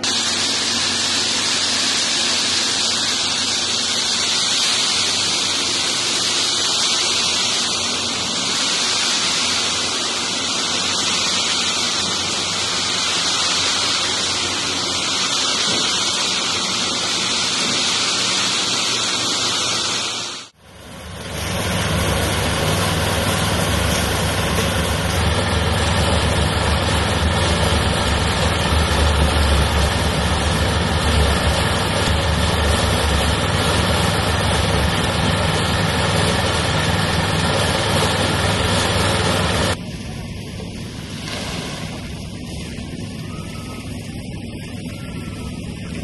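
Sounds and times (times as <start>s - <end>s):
concrete mixer engine droning: 0.0s - 46.0s.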